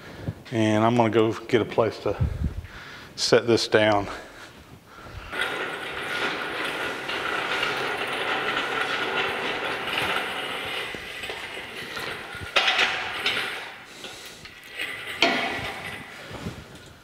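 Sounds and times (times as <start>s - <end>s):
hoist rolling and rattling on concrete: 5.1s - 17.0s.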